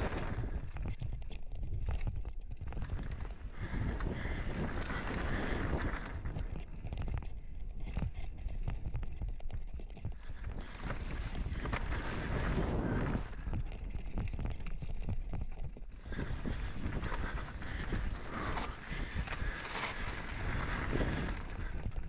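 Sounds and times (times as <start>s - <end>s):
tyres crunching over dirt: 0.0s - 1.3s, 2.6s - 7.0s, 10.2s - 14.0s, 15.9s - 22.0s
wind buffeting microphone: 0.0s - 9.0s, 10.1s - 14.4s, 15.8s - 22.0s.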